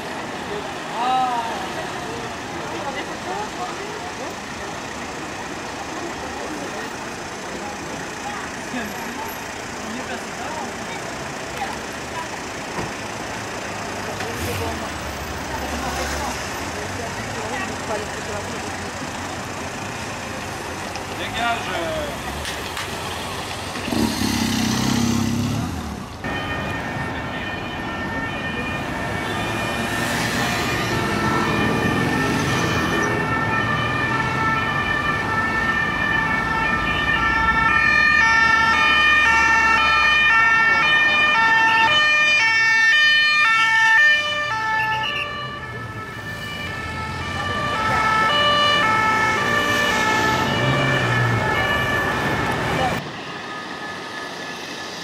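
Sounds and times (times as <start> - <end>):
street traffic: 0.0 - 55.0
two-tone police sirens: 26.2 - 55.0.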